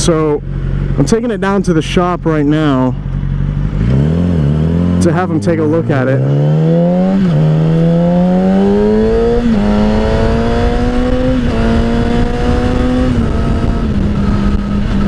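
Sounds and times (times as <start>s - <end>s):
motorcycle engine accelerating: 0.0s - 15.0s
wind rush on microphone: 7.2s - 15.0s.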